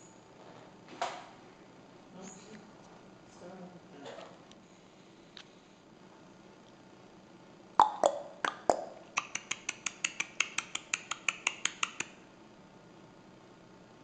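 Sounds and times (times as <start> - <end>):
sharp clicks: 9.2 - 12.1.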